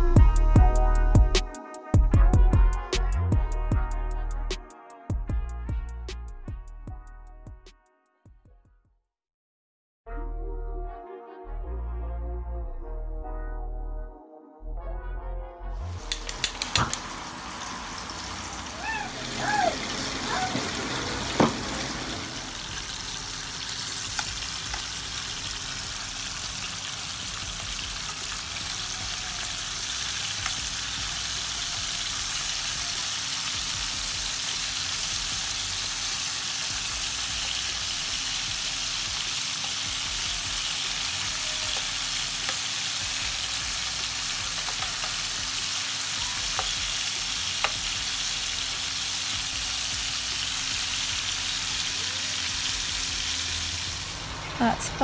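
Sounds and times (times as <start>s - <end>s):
chicken sizzling in oil: 16.0s - 54.8s
oil pops and clicks: 16.1s - 17.0s.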